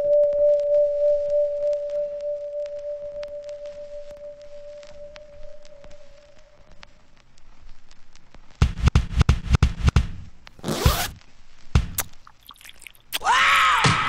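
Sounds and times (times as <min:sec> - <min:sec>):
short hissing swipe: 0:10.6 - 0:11.2.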